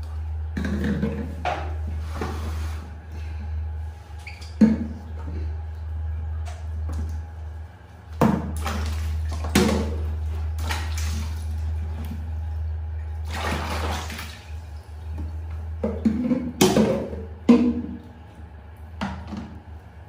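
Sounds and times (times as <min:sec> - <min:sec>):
steady low hum: 0:00.0 - 0:20.0
water splashing in plastic tub: 0:08.2 - 0:19.6.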